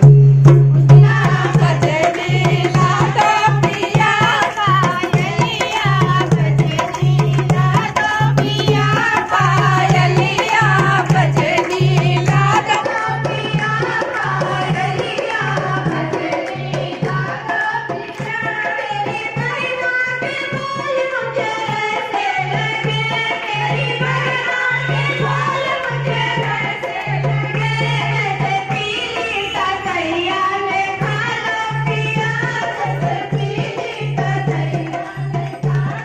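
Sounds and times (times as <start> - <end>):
hand drum beat: 0.0 - 29.1, 30.9 - 36.0
women singing folk song: 1.0 - 36.0.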